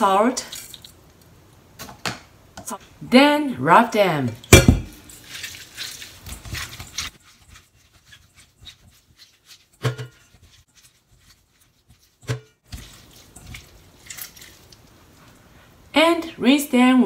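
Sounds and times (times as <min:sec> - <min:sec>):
wet rustling and squishing: 0:04.8 - 0:15.9.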